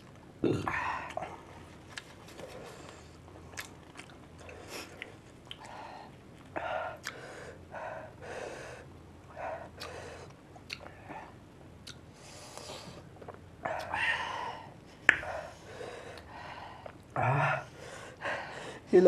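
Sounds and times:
mouth clicks: 11.8s - 12.0s.

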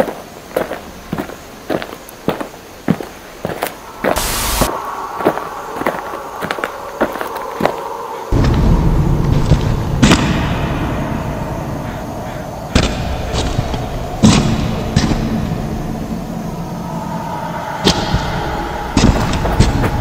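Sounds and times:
steady low rumble: 3.8s - 20.0s.

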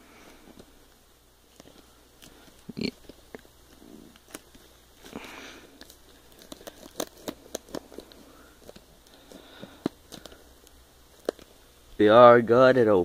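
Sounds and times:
plastic wrap crinkling: 1.4s - 11.7s
plastic rustle: 1.5s - 11.6s.

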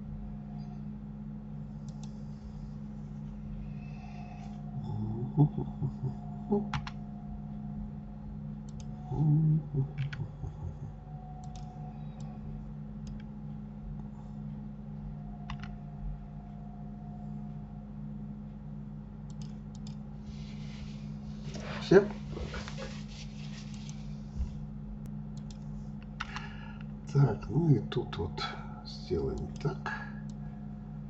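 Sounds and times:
steady low hum: 0.0s - 31.0s
mouse and keyboard clicks: 15.5s - 15.7s.

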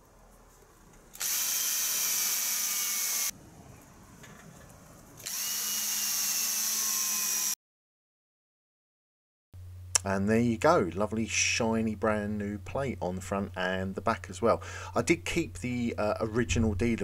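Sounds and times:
cordless drill boring into plastic: 1.2s - 3.3s, 5.2s - 7.6s.

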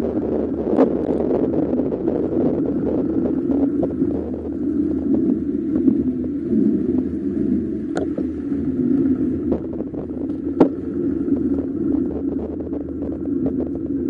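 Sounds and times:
bicycle rolling over pavement: 0.0s - 14.0s.

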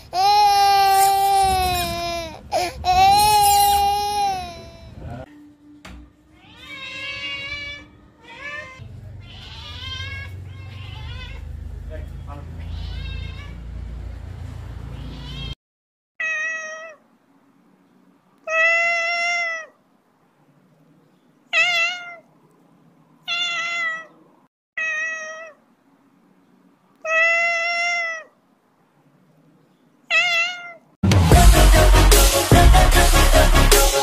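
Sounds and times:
cat meowing: 6.4s - 11.5s, 12.6s - 13.6s, 15.0s - 15.6s, 16.2s - 17.0s, 18.4s - 19.8s, 21.5s - 22.3s, 23.2s - 24.2s, 24.8s - 25.6s, 26.9s - 28.4s, 30.1s - 31.0s
electronic music with heavy beat: 31.1s - 34.0s.

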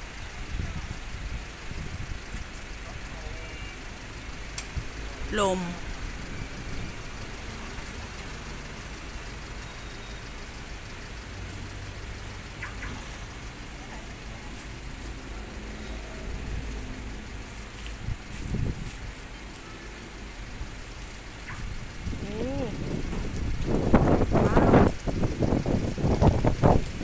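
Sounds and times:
wind rumble on microphone: 0.0s - 3.1s, 4.2s - 8.2s, 16.2s - 19.6s, 20.2s - 27.0s
gusty wind through trees: 0.0s - 27.0s.

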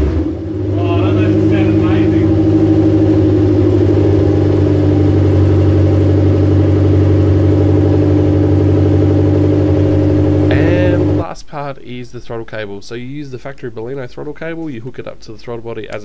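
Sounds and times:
car engine idling: 0.0s - 11.2s.

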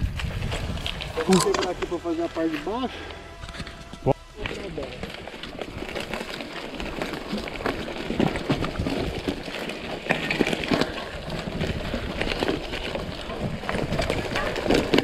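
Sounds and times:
tyres rolling on dirt: 0.0s - 15.0s
bike clicks and knocks: 3.4s - 15.0s.

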